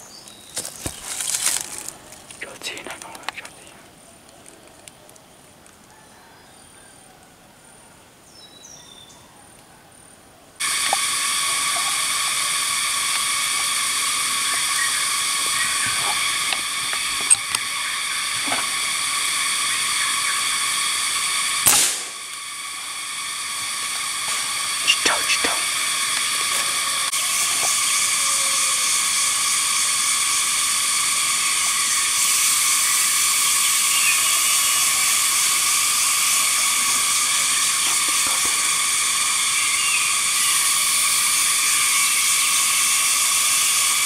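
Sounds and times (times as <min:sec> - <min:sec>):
loud insect chorus: 0:00.0 - 0:04.9, 0:09.9 - 0:44.0
faint high insect tone: 0:00.0 - 0:44.0
tiny chirps: 0:10.6 - 0:44.0
sharp crack: 0:21.4 - 0:22.4.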